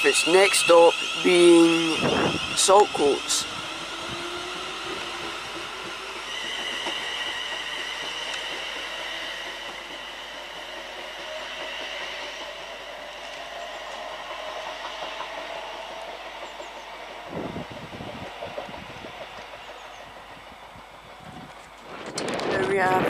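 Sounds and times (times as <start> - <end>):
steady high-pitched whine: 0.0 - 15.7
electric train traction whine: 0.0 - 23.0.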